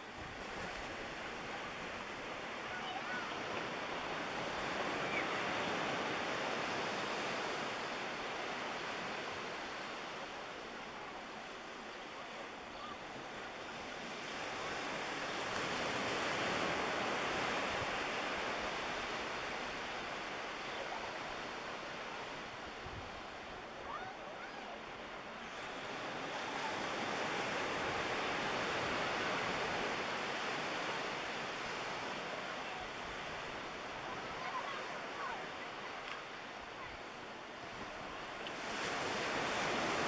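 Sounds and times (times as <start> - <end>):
small waves washing on beach: 0.0 - 40.0.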